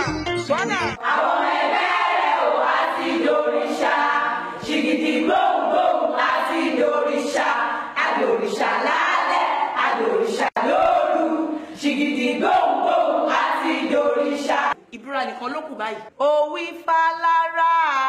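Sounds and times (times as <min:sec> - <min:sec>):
crowd singing together: 0:01.0 - 0:14.8.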